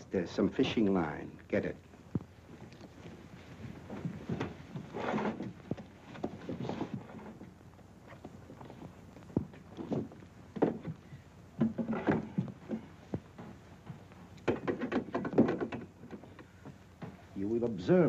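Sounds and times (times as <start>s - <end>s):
small knocks and scuffs: 2.1s - 17.8s
objects knocking on wooden shelf: 9.4s - 11.0s, 11.6s - 16.3s.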